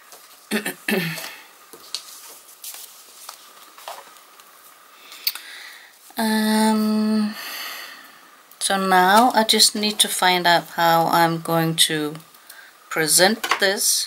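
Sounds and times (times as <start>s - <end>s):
paper rustling: 1.7s - 4.7s
woman humming: 6.2s - 7.4s.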